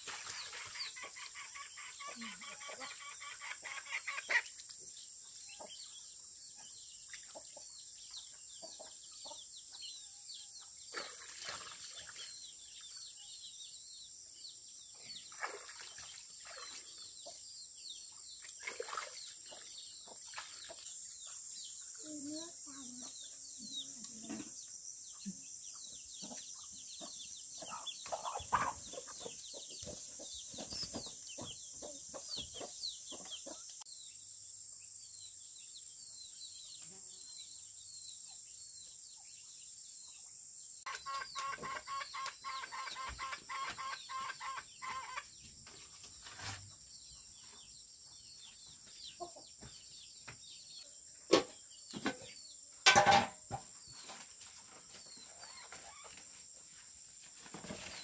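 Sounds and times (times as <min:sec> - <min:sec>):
chickens clucking: 0:00.0 - 0:04.6, 0:22.4 - 0:33.8, 0:40.9 - 0:46.7, 0:48.8 - 0:49.7
small birds chirping: 0:00.0 - 0:52.8, 0:53.5 - 0:58.0
insect buzz: 0:18.3 - 0:45.4.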